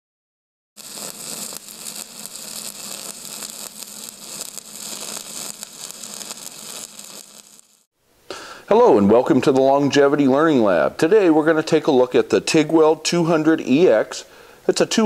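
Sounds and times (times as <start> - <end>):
crackling hiss: 0.8 - 8.8.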